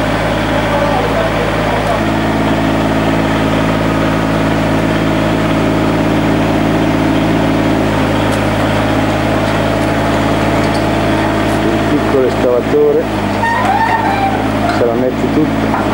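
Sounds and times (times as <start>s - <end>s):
excavator engine idling: 0.0s - 15.9s.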